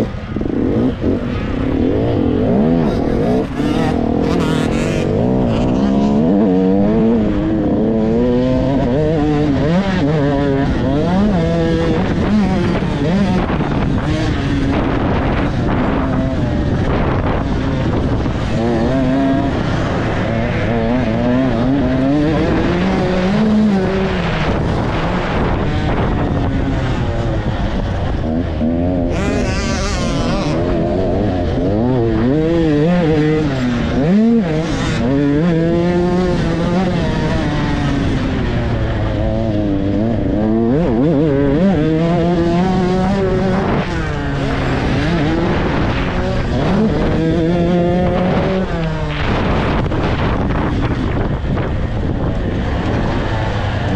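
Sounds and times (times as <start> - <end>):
dirt bike engine revving: 0.0 - 53.9.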